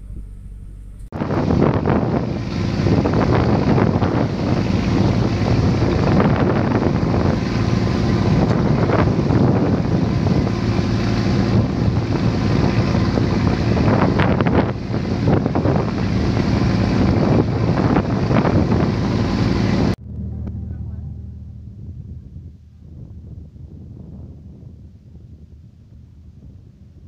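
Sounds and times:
boat engine humming: 0.0s - 27.0s
wind buffeting microphone: 1.1s - 27.0s
water rushing along hull: 1.2s - 20.0s.

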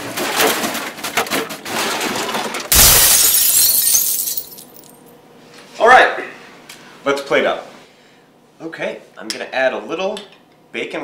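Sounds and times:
glass breaking crash: 2.7s - 5.0s.

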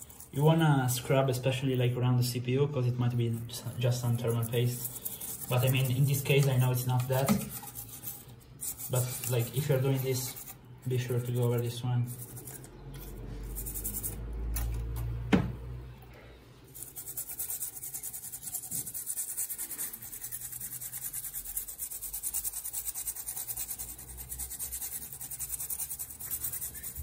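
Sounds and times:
brush scrubbing in soapy water: 0.0s - 14.3s, 16.6s - 27.0s
sharp knock: 15.3s - 15.6s.

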